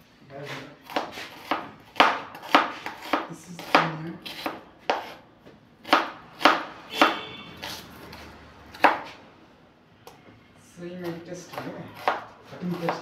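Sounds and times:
knife chopping on wooden board: 0:00.8 - 0:05.2, 0:05.8 - 0:09.2, 0:11.0 - 0:13.0.

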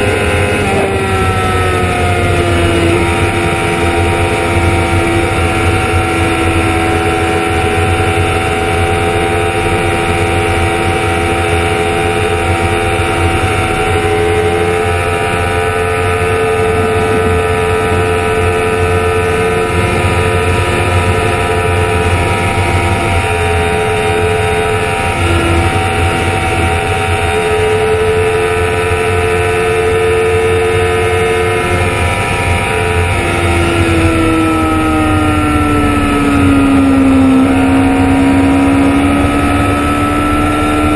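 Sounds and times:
heavy wind rush: 0:00.0 - 0:40.9
motorcycle engine running high: 0:00.0 - 0:40.9.

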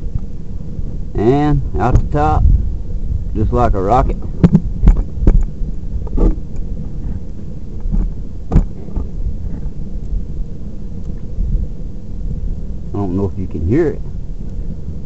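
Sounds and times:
fire crackling: 0:00.0 - 0:15.0
fire roaring in stove: 0:00.0 - 0:15.0.

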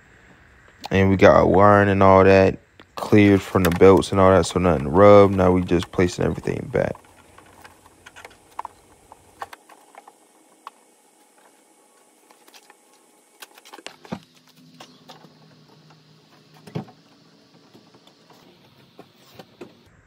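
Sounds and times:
parts clicking and tapping: 0:02.8 - 0:11.5.

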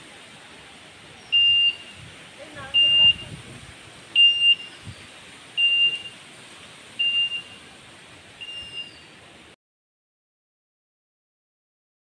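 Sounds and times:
steady hiss: 0:00.0 - 0:09.6
short high beeps: 0:01.3 - 0:01.9, 0:02.7 - 0:03.3, 0:04.2 - 0:04.8, 0:05.6 - 0:06.2, 0:07.0 - 0:07.6, 0:08.4 - 0:08.9.

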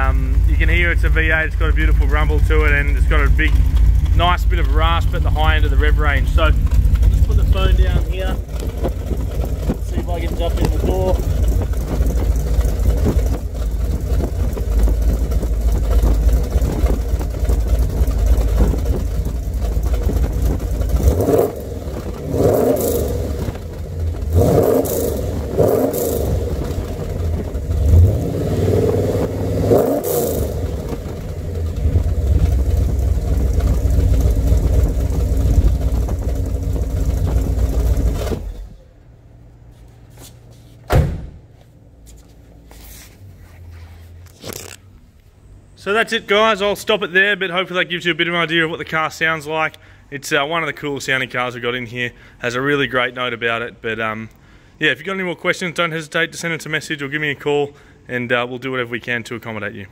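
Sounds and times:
car engine idling and revving: 0:00.0 - 0:39.9, 0:41.7 - 0:45.8.

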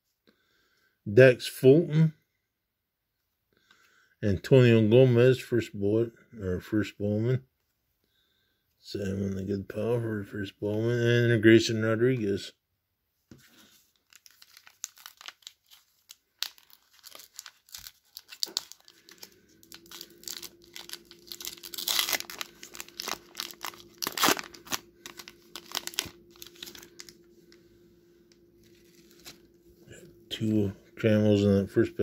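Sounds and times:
faint steady hum: 0:00.1 - 0:32.0
plastic wrapper crinkling: 0:13.5 - 0:27.6, 0:28.3 - 0:29.5.

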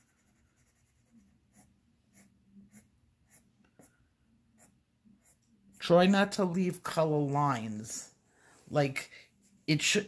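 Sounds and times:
colored pencil scratching on paper: 0:00.0 - 0:06.1.

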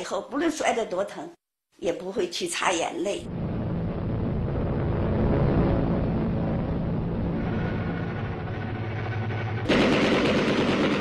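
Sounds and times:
loud blast of noise: 0:03.2 - 0:11.0.

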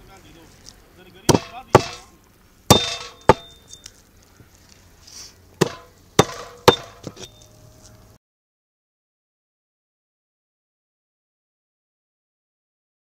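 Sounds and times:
cleaver chopping on wood block: 0:01.3 - 0:02.1, 0:02.7 - 0:03.6, 0:05.6 - 0:07.3
metallic ring of blade: 0:02.7 - 0:03.8, 0:05.7 - 0:07.4.

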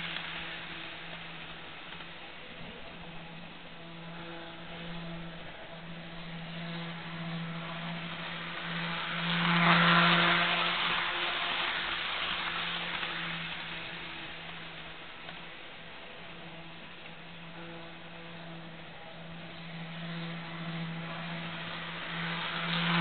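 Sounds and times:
model train motor hum: 0:00.0 - 0:23.0
wheels on rails: 0:00.0 - 0:23.0.

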